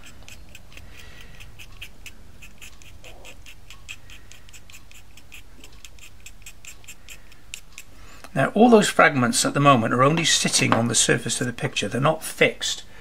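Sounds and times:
blade scraping pastel stick: 0.0s - 7.9s.

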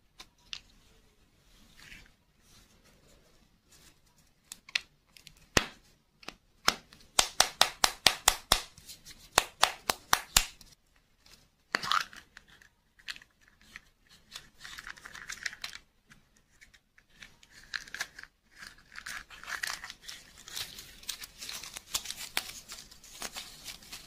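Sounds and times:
paper crinkling and rustling: 11.2s - 24.0s.

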